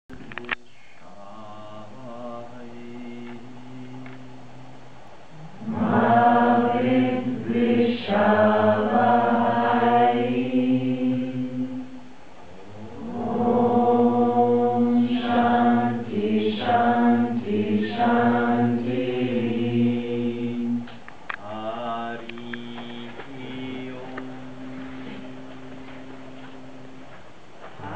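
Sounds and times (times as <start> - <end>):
voices chanting in unison: 5.4 - 12.0, 12.7 - 25.3.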